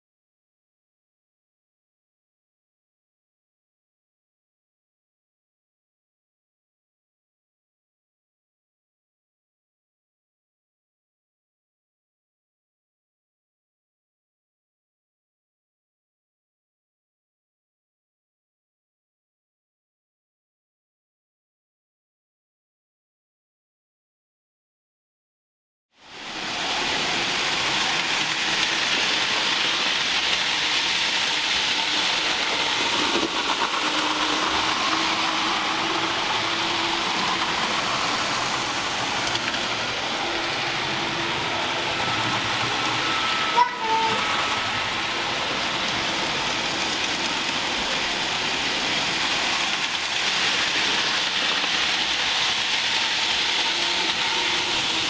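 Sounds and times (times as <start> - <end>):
steady hissing: 26.1 - 43.1
short tone: 43.0 - 44.9.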